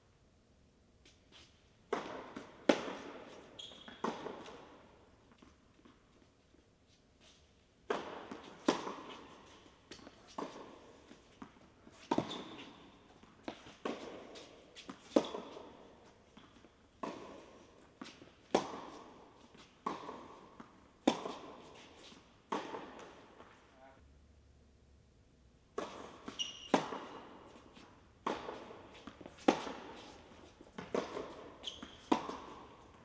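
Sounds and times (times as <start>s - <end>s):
tennis balls struck by rackets: 1.9s - 6.0s, 7.8s - 23.6s, 25.7s - 33.0s.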